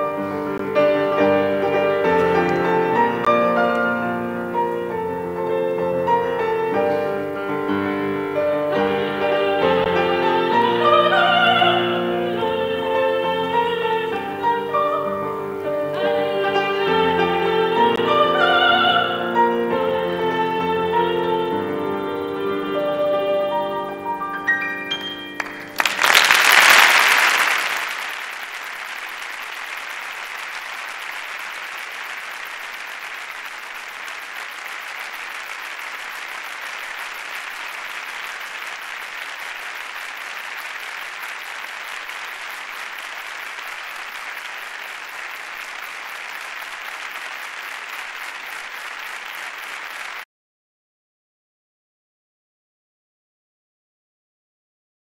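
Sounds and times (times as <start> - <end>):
audience applauding: 0.0 - 4.0, 25.4 - 50.3.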